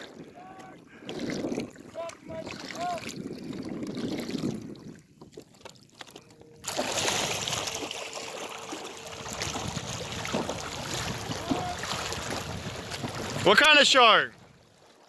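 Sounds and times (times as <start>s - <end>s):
wind on microphone: 0.0s - 5.6s, 9.2s - 13.4s
water noise: 0.0s - 15.0s.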